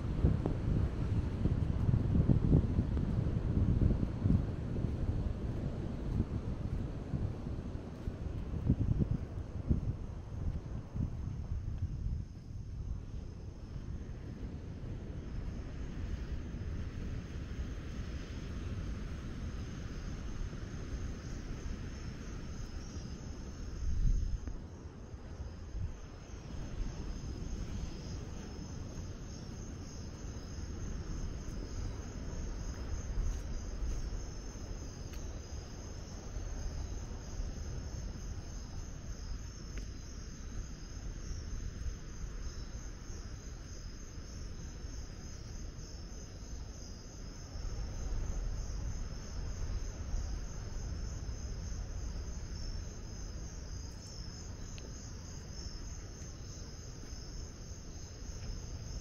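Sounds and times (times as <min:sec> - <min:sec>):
crickets chirping: 0:00.0 - 0:59.0.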